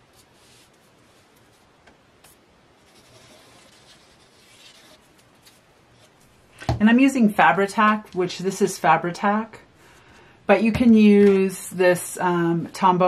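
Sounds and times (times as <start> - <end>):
glue nozzle scratching on paper: 2.8 - 5.0.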